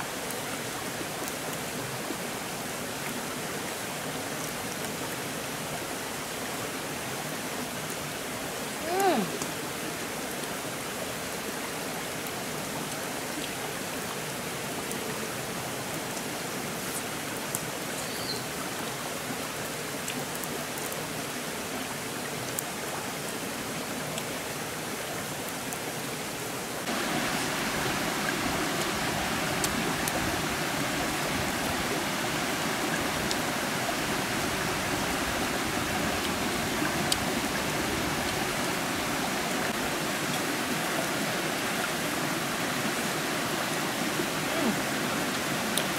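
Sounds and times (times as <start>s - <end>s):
running water hissing: 26.8s - 45.9s.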